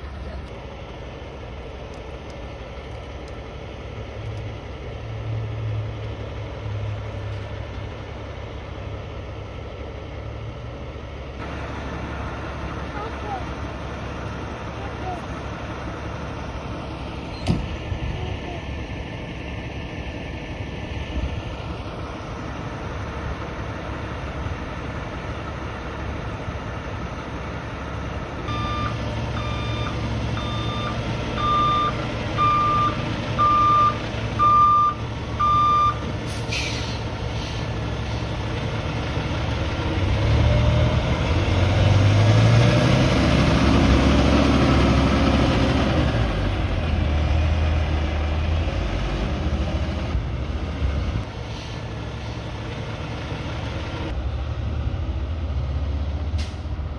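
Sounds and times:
diesel truck engine idling: 0:00.0 - 0:56.9
backup beeper: 0:28.5 - 0:36.0
air brake hiss: 0:36.2 - 0:37.7, 0:51.4 - 0:51.9.

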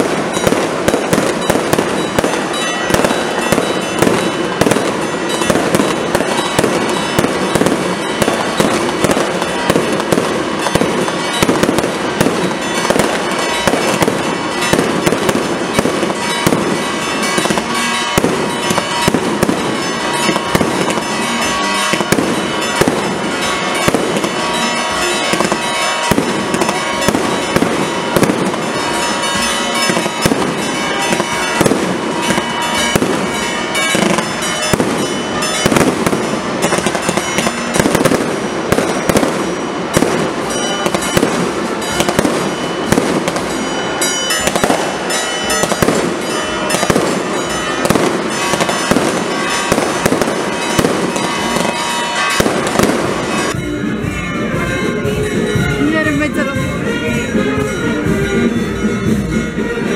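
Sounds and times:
firecrackers crackling: 0:00.0 - 0:57.8
music: 0:52.4 - 0:59.9.

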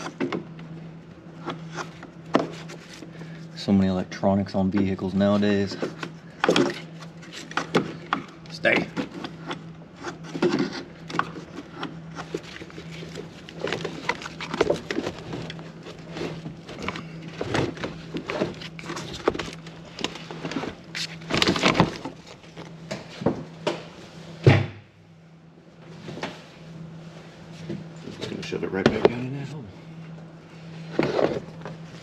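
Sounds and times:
steady low hum: 0:00.0 - 0:32.0
heavy thunk: 0:24.4 - 0:24.8.

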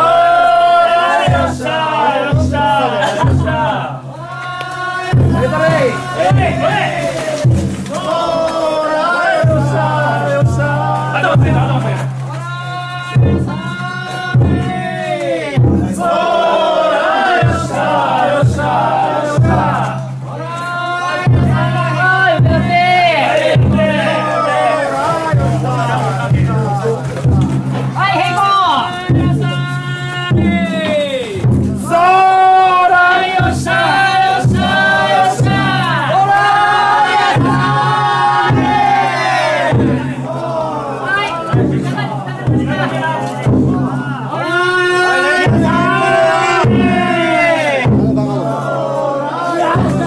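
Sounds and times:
group of men singing: 0:00.0 - 0:26.6, 0:31.8 - 0:41.3, 0:41.9 - 0:50.0
heavy drum beats: 0:00.0 - 0:50.0
men singing in long held notes: 0:32.0 - 0:40.8.

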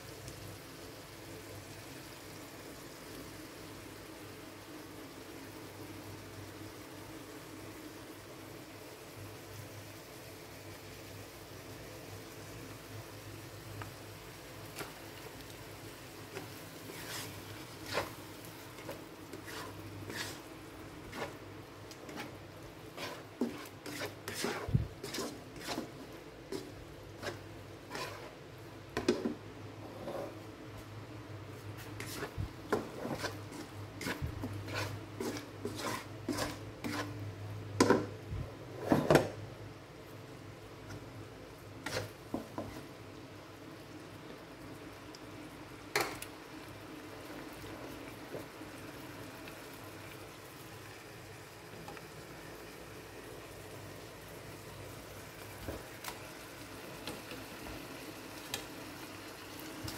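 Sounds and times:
spatula scraping a wok: 0:16.3 - 0:30.5, 0:31.8 - 0:38.1, 0:38.7 - 0:39.2, 0:41.8 - 0:43.0.

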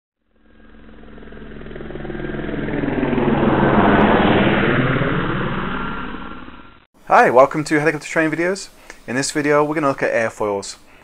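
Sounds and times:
helicopter flying past: 0:00.2 - 0:06.9.

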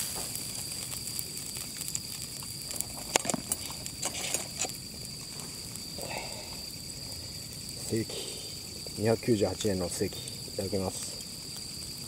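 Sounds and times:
sharp clicks and pops: 0:00.0 - 0:05.2
crickets trilling: 0:00.0 - 0:12.0.

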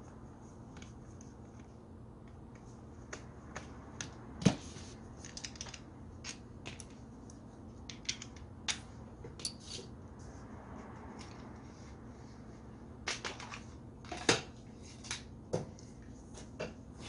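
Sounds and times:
metal parts clicking and clacking: 0:05.2 - 0:06.9, 0:07.9 - 0:08.8.

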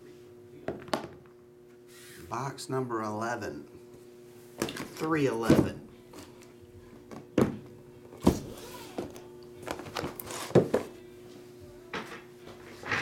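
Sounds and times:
faint steady hum: 0:00.0 - 0:13.0
cardboard boxes thunking on a table: 0:08.2 - 0:10.9.

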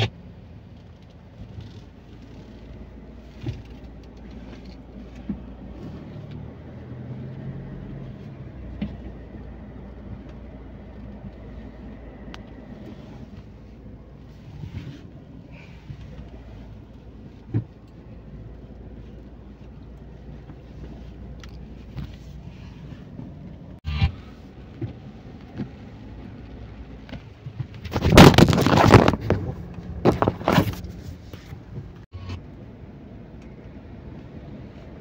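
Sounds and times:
car cabin rumble: 0:00.0 - 0:35.0.

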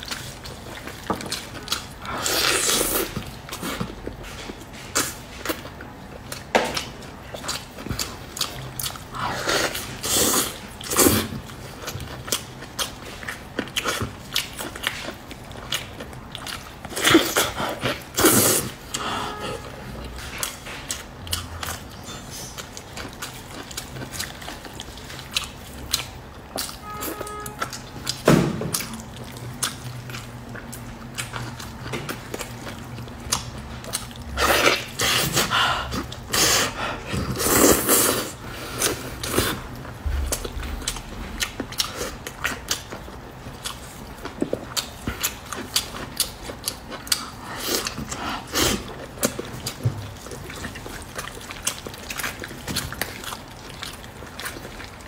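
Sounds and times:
wet mouth clicks and chewing: 0:00.0 - 0:55.0.

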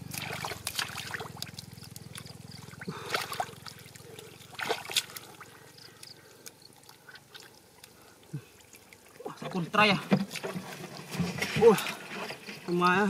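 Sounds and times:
hands splashing in muddy water: 0:00.0 - 0:09.3
low steady hum: 0:00.0 - 0:12.7.

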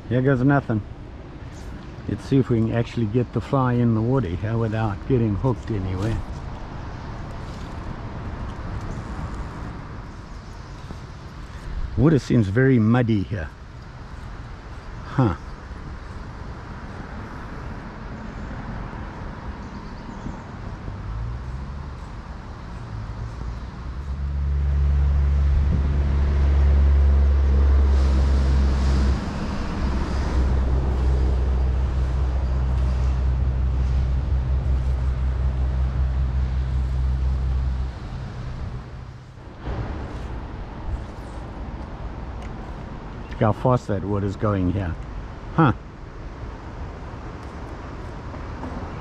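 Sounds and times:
loud low rumble: 0:24.0 - 0:42.3.

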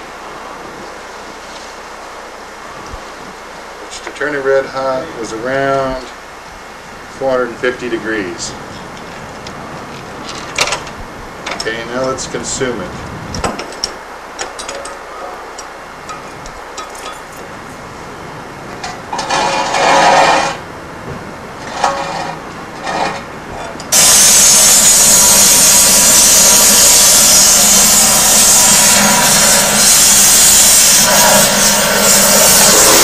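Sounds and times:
gas torch hissing: 0:23.9 - 0:33.0
short noisy bursts: 0:23.9 - 0:33.0.

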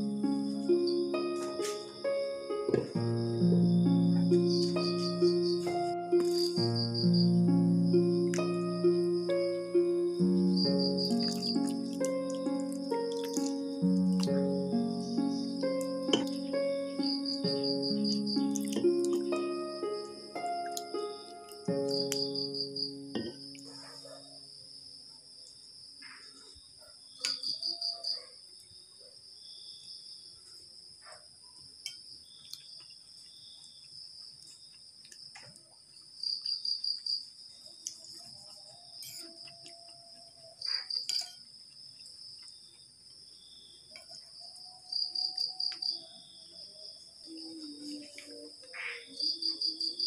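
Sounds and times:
pulsed insect trill: 0:00.0 - 0:24.2
insects chirping drone: 0:00.0 - 0:26.3, 0:36.2 - 0:50.0.

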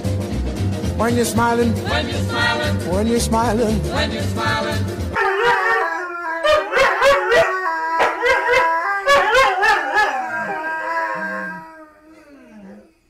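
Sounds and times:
dogs howling together: 0:05.1 - 0:13.0.

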